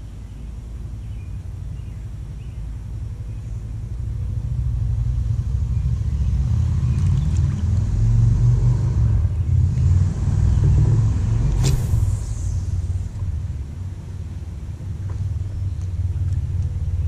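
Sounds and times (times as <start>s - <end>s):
wind buffeting microphone: 1.0s - 17.0s.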